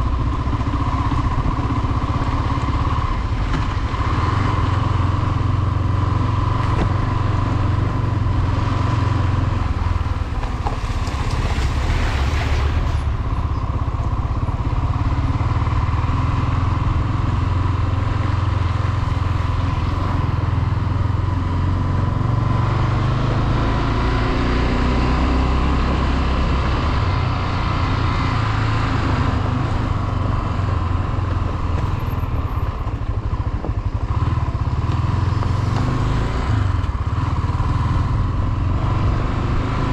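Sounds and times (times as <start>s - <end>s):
motorcycle engine running: 0.0s - 11.3s, 13.0s - 39.9s.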